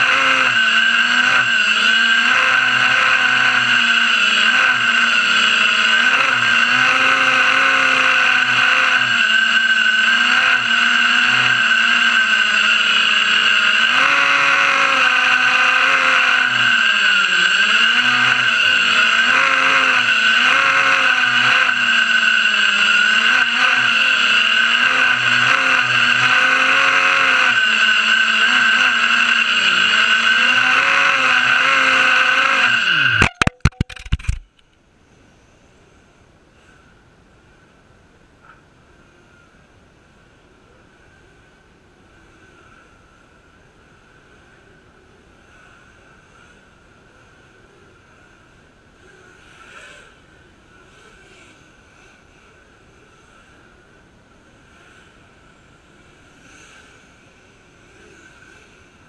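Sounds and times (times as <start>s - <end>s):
drone motors whining: 0.0s - 34.5s.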